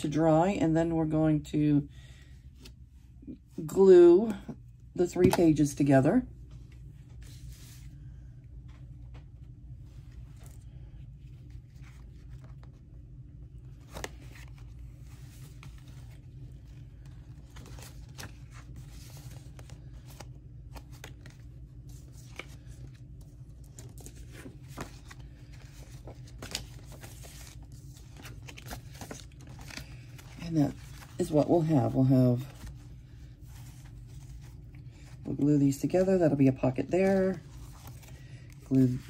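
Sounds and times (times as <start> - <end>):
paper rustling: 8.7 - 12.9, 13.6 - 39.0.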